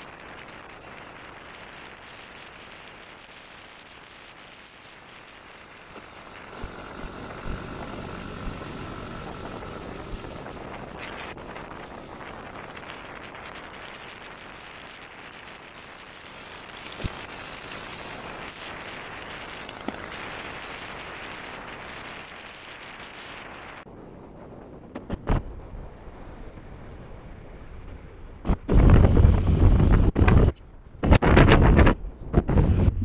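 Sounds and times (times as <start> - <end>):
wind hiss on microphone: 0.0 - 23.9
rumbling wind buffeting: 0.0 - 33.0.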